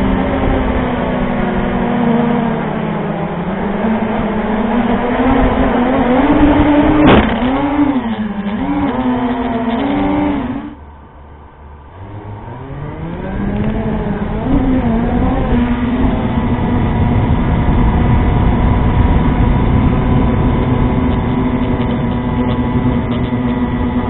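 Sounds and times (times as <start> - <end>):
drone propellers buzzing: 0.0 - 24.0
drone hitting the ground: 5.5 - 12.4.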